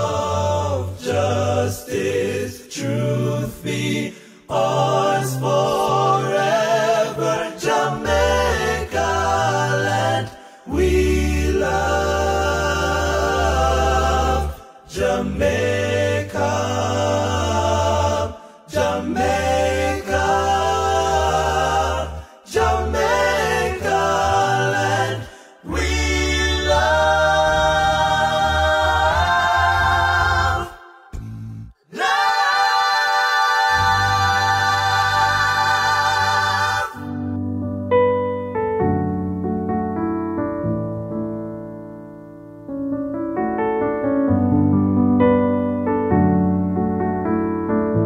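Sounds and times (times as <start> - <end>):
a cappella choir singing: 0.0 - 37.4.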